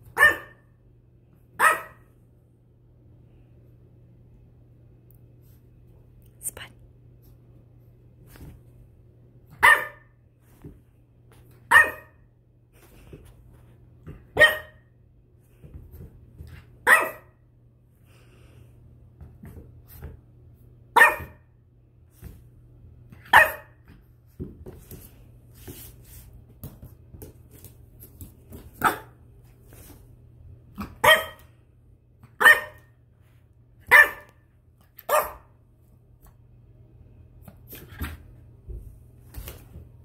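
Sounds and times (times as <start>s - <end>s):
puppy barking: 0.1s - 0.7s, 1.6s - 2.1s, 9.6s - 10.2s, 11.7s - 12.3s, 14.3s - 14.9s, 16.8s - 17.4s, 20.9s - 21.4s, 23.2s - 23.8s, 28.8s - 29.2s, 30.8s - 31.5s, 32.2s - 32.9s, 33.8s - 34.4s, 35.0s - 35.5s.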